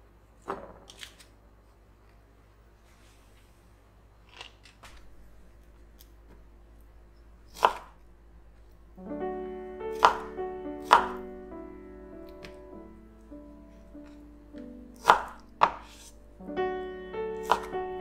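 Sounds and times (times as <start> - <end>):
soft piano music: 8.8 - 18.0.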